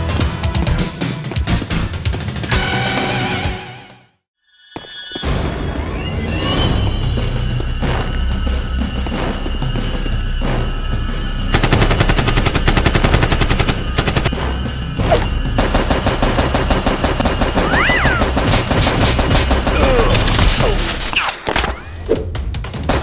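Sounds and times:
automatic gunfire sound effects: 0:11.5 - 0:14.3.

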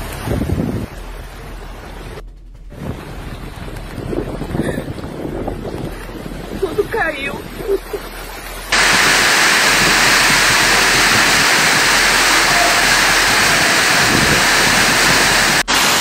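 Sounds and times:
floodwater rushing along street: 0:00.0 - 0:16.0
torrential rain: 0:00.0 - 0:16.0.

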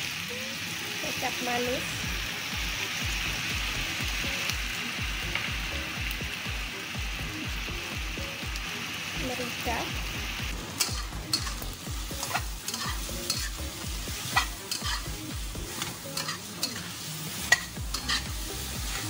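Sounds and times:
frying sizzle: 0:00.0 - 0:19.0
spatula scraping a wok: 0:10.6 - 0:19.0.

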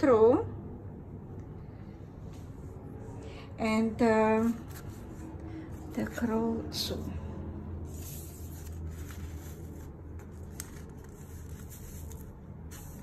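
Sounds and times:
steady low hum: 0:00.0 - 0:13.0
paper rustling: 0:04.4 - 0:06.1, 0:07.9 - 0:13.0.

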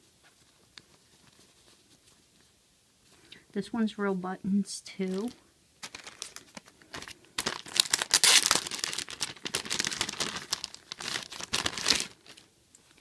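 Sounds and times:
plastic bag crinkling: 0:05.0 - 0:13.0.

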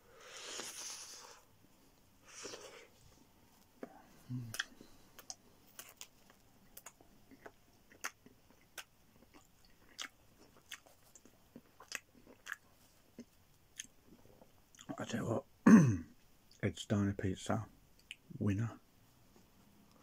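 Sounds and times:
soft chewing clicks: 0:03.6 - 0:15.0, 0:17.9 - 0:18.3.

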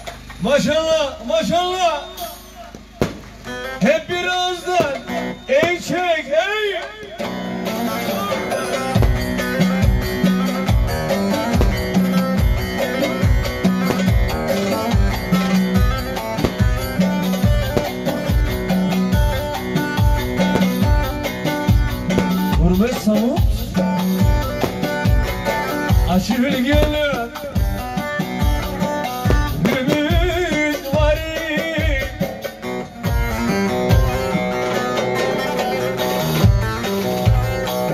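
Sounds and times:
deep drum beats: 0:02.8 - 0:03.9, 0:06.9 - 0:34.4
man singing: 0:26.1 - 0:27.6, 0:29.5 - 0:32.3.

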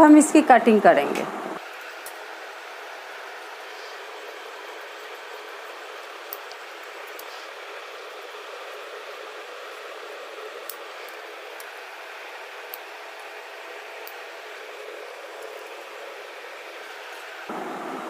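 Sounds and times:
background hiss: 0:17.5 - 0:18.0.

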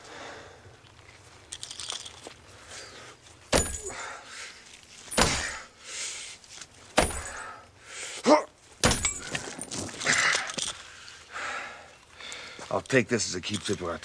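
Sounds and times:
heavy blows: 0:05.1 - 0:05.7, 0:07.0 - 0:07.5.

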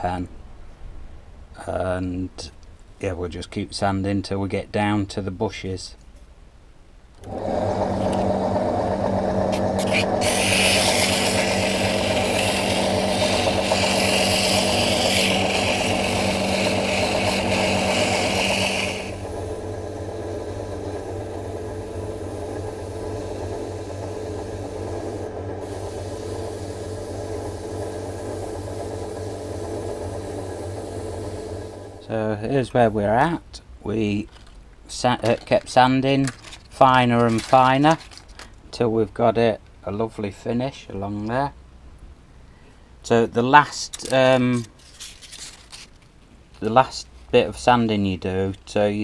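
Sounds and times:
lathe motor humming: 0:07.2 - 0:32.0
sandpaper sanding hiss: 0:09.8 - 0:19.2.

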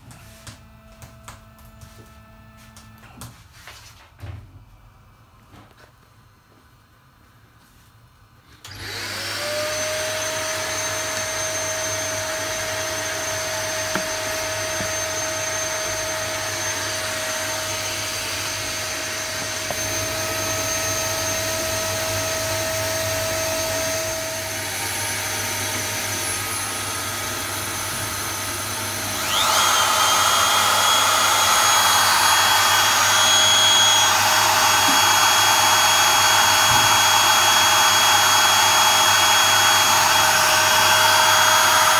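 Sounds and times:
vacuum motor whining: 0:00.0 - 0:03.3, 0:08.6 - 0:41.9
second motor high whine: 0:28.9 - 0:41.9.

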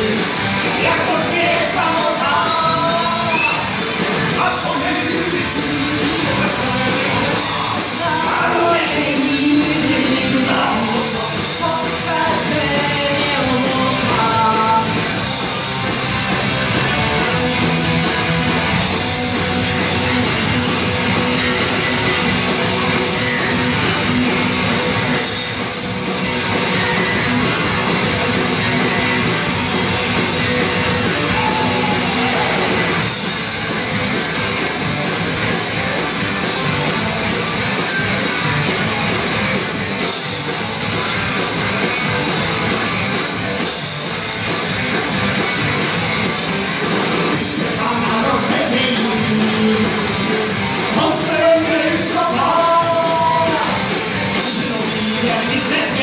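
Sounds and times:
sung and shouted vocals: 0:00.0 - 0:15.1, 0:47.3 - 0:50.2, 0:50.9 - 0:56.0
electric guitars: 0:00.0 - 0:56.0
steady drum beat: 0:00.0 - 0:56.0.

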